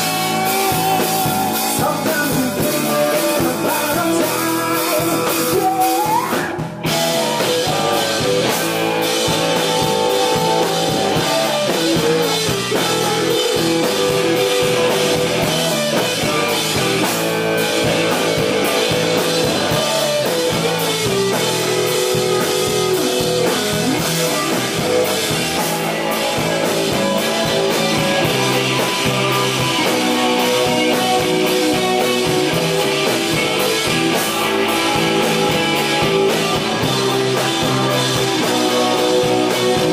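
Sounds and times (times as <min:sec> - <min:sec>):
drum kit: 0:00.0 - 0:39.9
electric guitar: 0:00.0 - 0:39.9.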